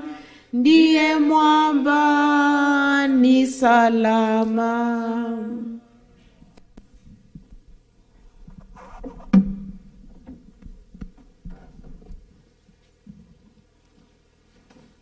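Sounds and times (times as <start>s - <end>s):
sharp knock: 9.2s - 9.8s.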